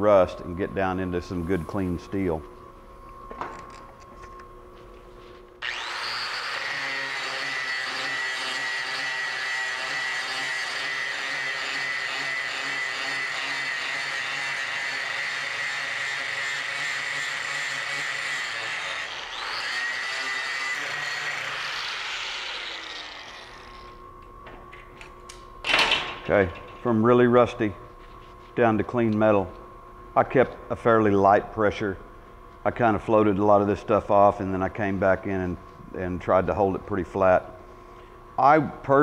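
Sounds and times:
angle grinder grinding metal: 0:05.6 - 0:24.0.

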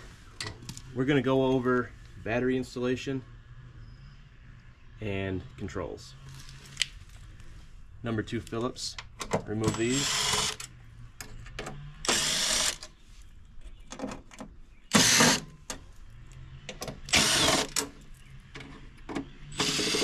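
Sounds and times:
cordless driver whirring: 0:09.7 - 0:10.7, 0:12.0 - 0:12.9, 0:14.9 - 0:15.4, 0:17.0 - 0:17.8, 0:19.5 - 0:20.0.

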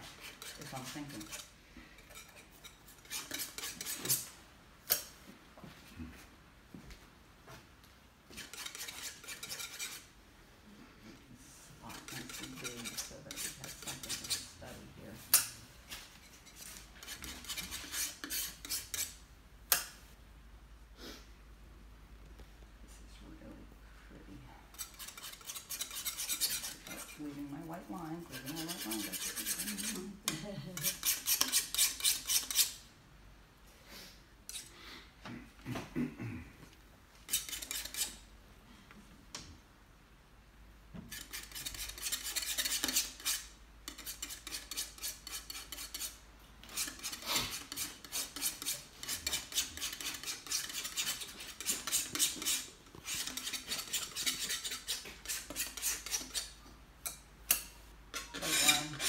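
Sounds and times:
paintbrush scrubbing strokes: 0:24.9 - 0:30.1.

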